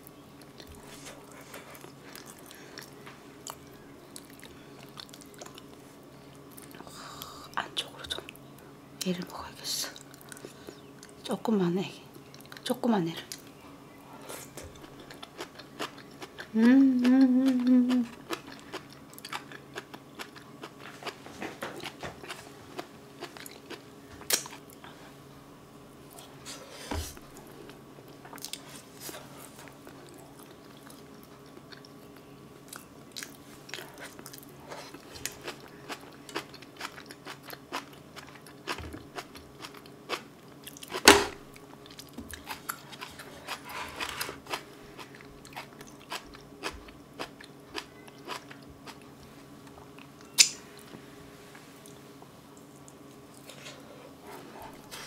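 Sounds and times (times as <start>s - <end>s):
chewing and lip-smacking: 0.4s - 7.3s, 9.9s - 11.2s, 12.2s - 12.7s, 14.3s - 24.9s, 27.3s - 28.9s, 29.6s - 50.6s
person humming: 16.5s - 18.2s.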